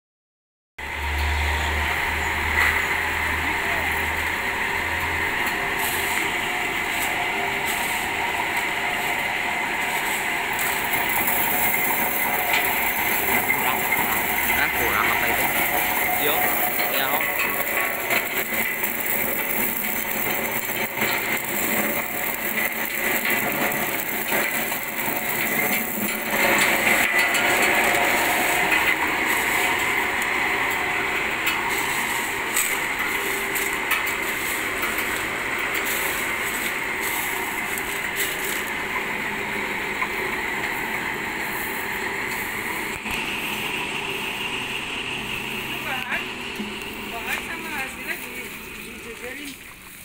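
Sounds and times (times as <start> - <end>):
stone crusher grinding gravel: 2.4 - 50.0.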